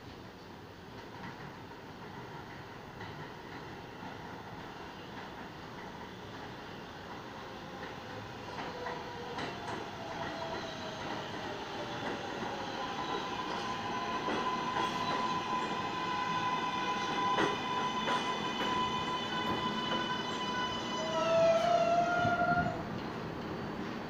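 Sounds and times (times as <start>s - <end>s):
train motor whine: 12.4s - 22.9s.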